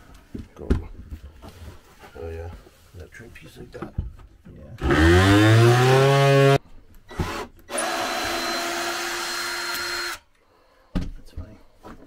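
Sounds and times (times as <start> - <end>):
handheld power tool whining: 4.8 - 10.3.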